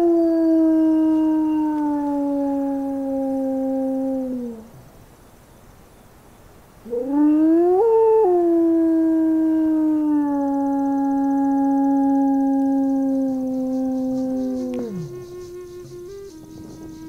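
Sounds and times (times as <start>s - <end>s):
wolf howl through loudspeaker: 9.4s - 15.2s.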